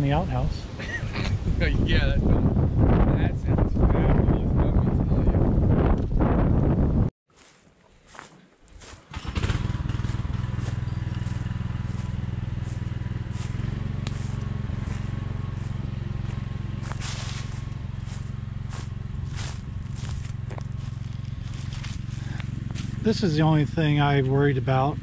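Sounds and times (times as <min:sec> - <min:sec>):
footsteps crunching on dry leaves: 0:07.3 - 0:23.5
brush cutter engine humming: 0:08.9 - 0:25.0.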